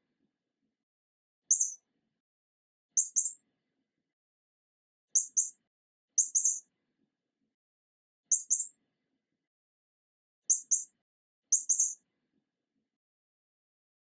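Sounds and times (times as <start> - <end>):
high-pitched chirps: 1.5 - 1.8, 3.0 - 3.4, 5.2 - 5.6, 6.2 - 6.6.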